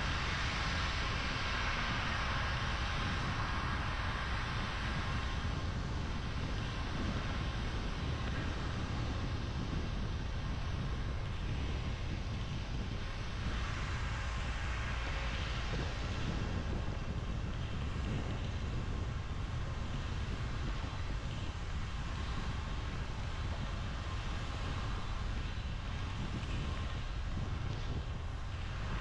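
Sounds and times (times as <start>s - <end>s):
tyres hissing on wet road: 0.0s - 9.3s, 13.0s - 29.0s
road and engine rumble: 0.0s - 29.0s.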